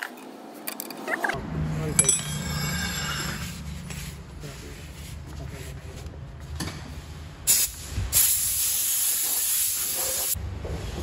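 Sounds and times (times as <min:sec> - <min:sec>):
pressurized spray hissing: 0:07.5 - 0:10.4.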